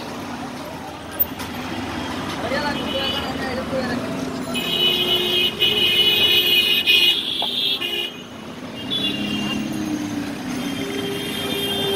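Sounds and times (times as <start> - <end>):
street traffic: 0.0 - 11.9
vehicle horns honking: 4.5 - 9.8, 10.5 - 11.9.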